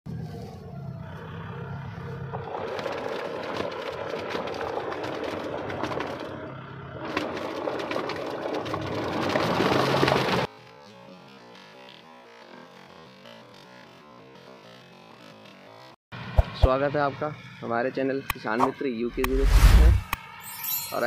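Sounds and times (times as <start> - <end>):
blades slapping and splattering mud: 2.3 - 6.4, 7.0 - 10.5.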